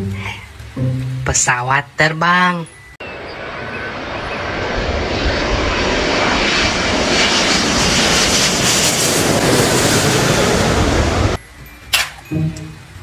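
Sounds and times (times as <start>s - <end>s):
jet engines roaring overhead: 3.0s - 11.4s.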